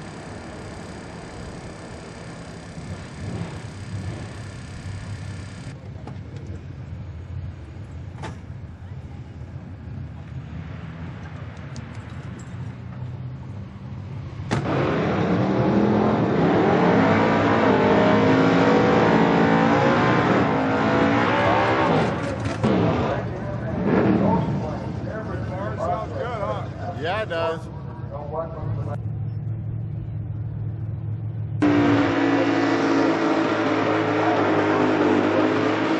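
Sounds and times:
car engine revving: 0:00.0 - 0:05.8, 0:14.4 - 0:25.8, 0:29.6 - 0:35.9.

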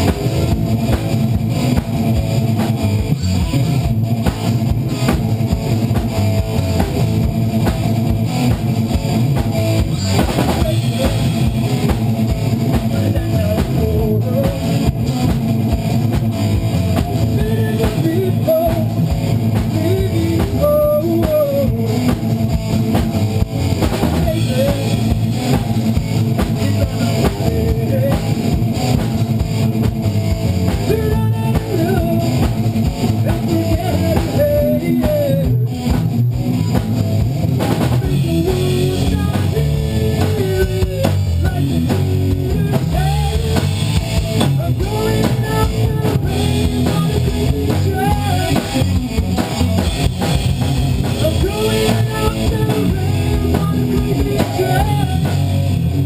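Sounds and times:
rock band playing: 0:00.0 - 0:56.0
person singing into a microphone: 0:09.9 - 0:11.8, 0:12.7 - 0:15.1, 0:17.0 - 0:22.4, 0:24.0 - 0:25.7, 0:26.4 - 0:28.7, 0:30.8 - 0:35.9, 0:38.0 - 0:49.1, 0:51.1 - 0:55.8.

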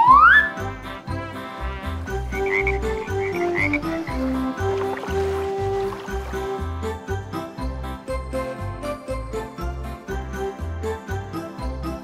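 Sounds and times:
rising whistle sound effect: 0:00.0 - 0:00.5
music with steady beat: 0:00.0 - 0:12.0.

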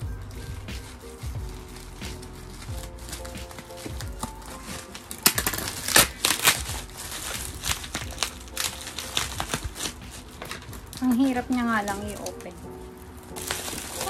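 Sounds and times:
bubble wrap crackling: 0:00.0 - 0:14.0.

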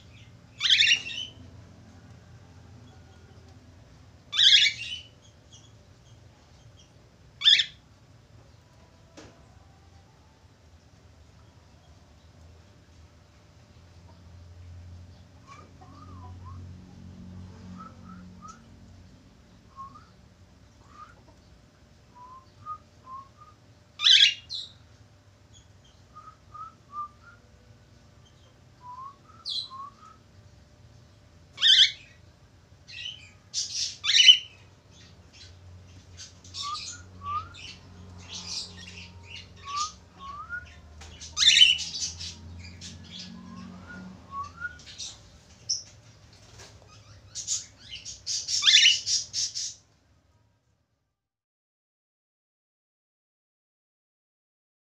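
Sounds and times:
harsh bird screeching: 0:00.6 - 0:01.4, 0:04.3 - 0:05.1, 0:07.4 - 0:07.8, 0:24.0 - 0:24.6, 0:31.6 - 0:32.1, 0:33.0 - 0:34.6, 0:48.3 - 0:49.8
soft rising bird chirps: 0:32.9 - 0:45.9.

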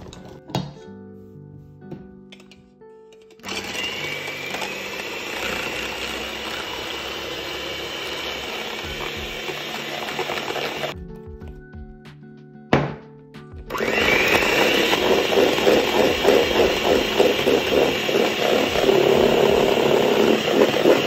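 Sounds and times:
electric hand mixer whirring: 0:03.4 - 0:11.0, 0:13.7 - 0:21.0.

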